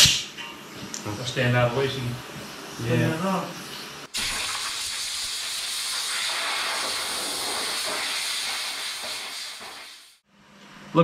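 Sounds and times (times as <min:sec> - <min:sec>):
air blow gun hissing: 0:04.1 - 0:10.2.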